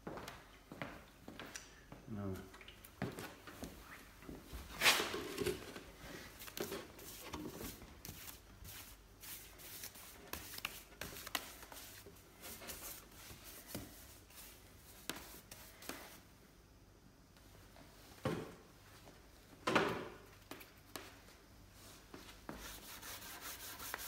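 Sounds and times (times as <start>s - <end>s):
paintbrush scrubbing wood: 6.9s - 16.1s, 22.5s - 24.0s.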